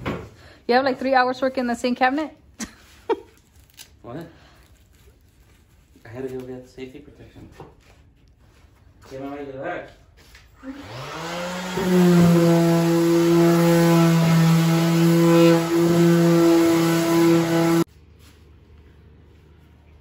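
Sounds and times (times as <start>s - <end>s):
electric sander whining: 10.6s - 17.9s.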